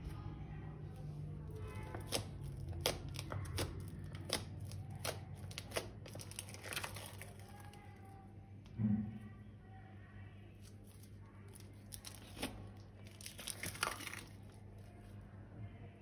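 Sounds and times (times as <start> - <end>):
plastic crinkling: 1.6 - 8.0, 10.6 - 15.0.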